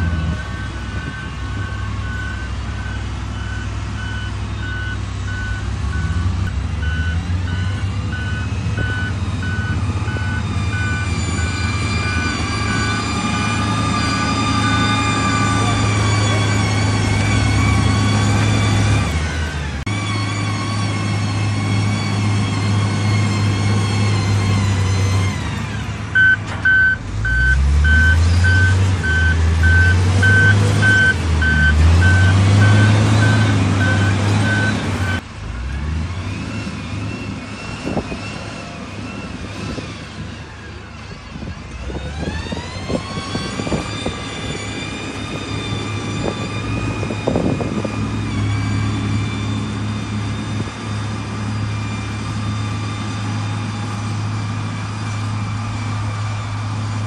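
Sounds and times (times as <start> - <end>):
reversing alarm beeping: 0.0 - 19.4, 26.1 - 35.2
diesel engine working: 0.0 - 57.0.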